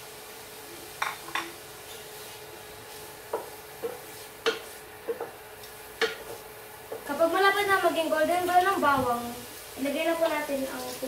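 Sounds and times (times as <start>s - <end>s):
faint sizzle of frying in oil: 0.0s - 11.0s
spatula knocking against pot: 3.3s - 5.4s, 6.0s - 7.0s.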